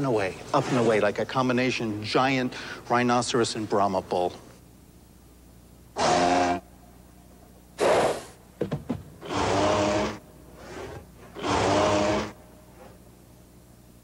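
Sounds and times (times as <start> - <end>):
rasping creature calls: 6.0 - 6.7, 9.2 - 12.4.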